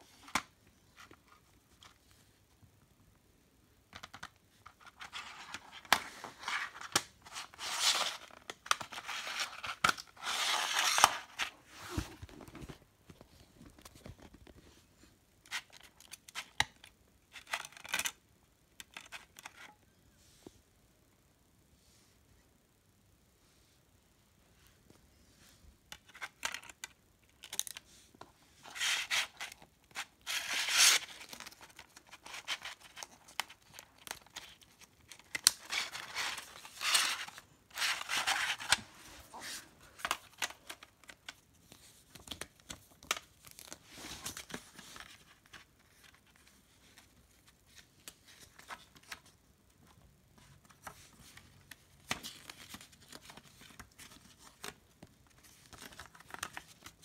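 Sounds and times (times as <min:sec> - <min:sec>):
paper rustling: 0:28.6 - 0:57.0.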